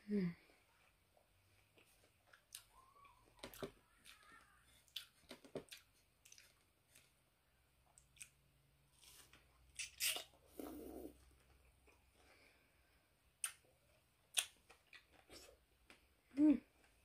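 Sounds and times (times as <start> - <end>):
person chewing fruit: 1.6 - 7.3, 7.9 - 12.6, 13.3 - 16.1.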